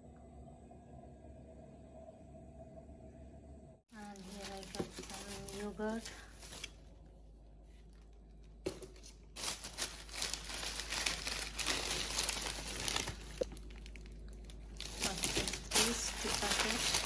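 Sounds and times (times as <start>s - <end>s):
plastic bag rustling: 4.0s - 6.9s, 8.7s - 17.0s.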